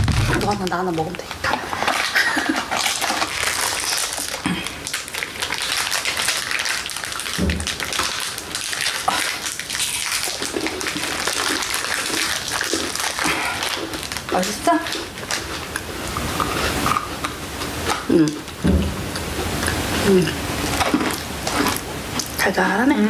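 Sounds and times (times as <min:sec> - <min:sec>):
crackling and rustling: 0:00.0 - 0:22.9
dull thump: 0:18.6 - 0:19.0.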